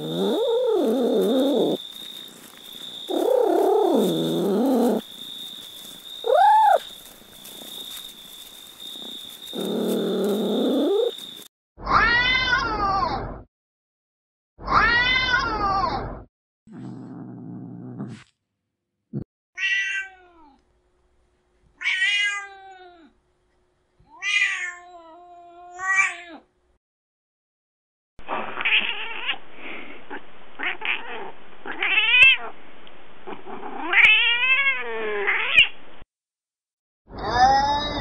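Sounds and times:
recorded cat meows: 0.0s - 1.8s, 6.3s - 6.9s, 11.8s - 13.4s, 14.6s - 16.2s, 19.6s - 20.6s, 21.8s - 23.1s, 24.1s - 26.5s, 28.5s - 29.4s, 30.6s - 32.5s, 33.4s - 35.7s
background noise: 0.0s - 11.5s.

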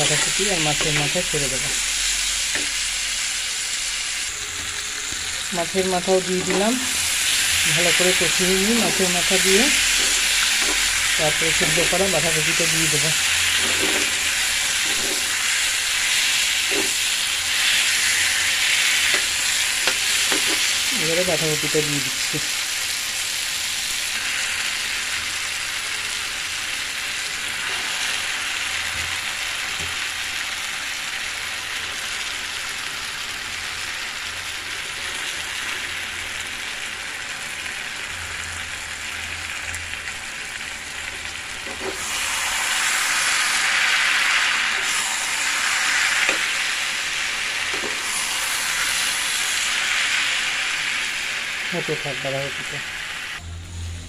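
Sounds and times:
metal spatula turning food: 0.0s - 1.8s, 5.7s - 21.3s
food sizzling in a frying pan: 0.0s - 54.0s.

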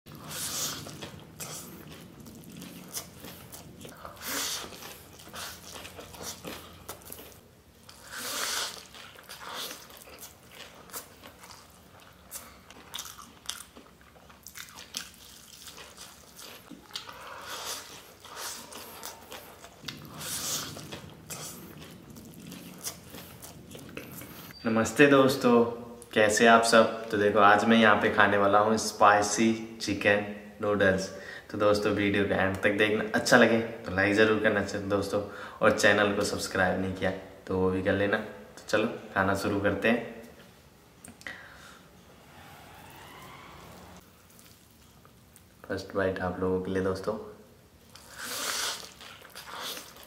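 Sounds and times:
man chewing noodles: 0.1s - 24.6s, 44.0s - 45.6s, 47.8s - 50.0s.

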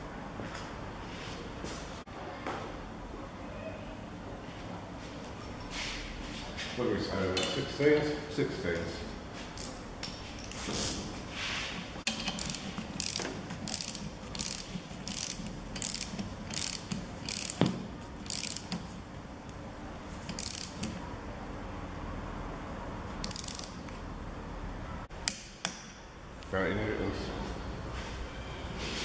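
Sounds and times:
socket ratchet clicking: 12.1s - 18.9s, 20.3s - 21.0s, 23.2s - 23.9s.

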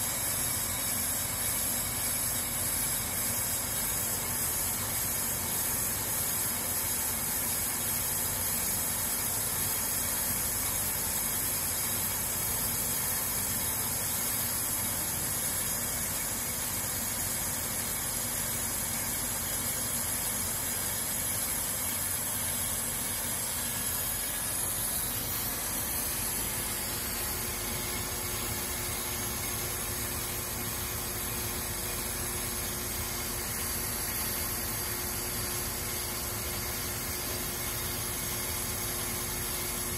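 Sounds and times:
lathe motor running: 15.0s - 39.9s.

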